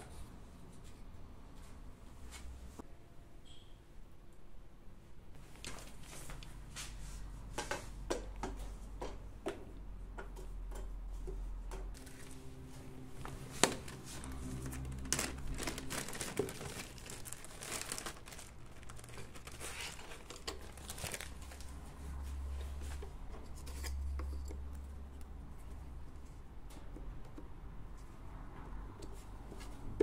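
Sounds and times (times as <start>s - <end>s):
plastic bag crinkling: 13.2s - 21.8s.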